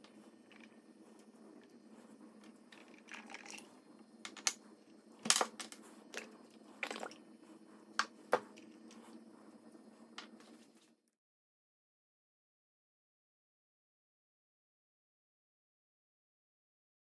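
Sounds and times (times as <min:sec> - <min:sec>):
steady low hum: 0:00.0 - 0:11.1.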